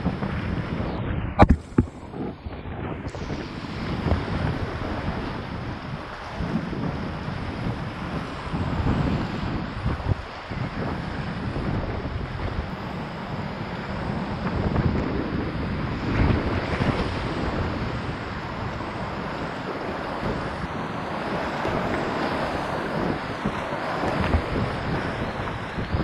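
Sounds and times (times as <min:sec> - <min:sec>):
wind buffeting microphone: 0:00.0 - 0:26.0
whitewater rapids rushing: 0:15.7 - 0:26.0.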